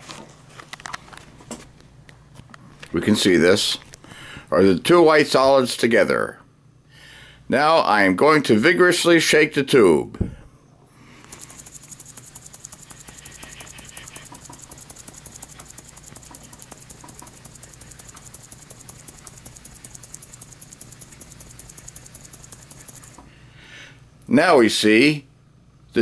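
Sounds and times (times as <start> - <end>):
powder rattling in glass tube: 11.2 - 23.2.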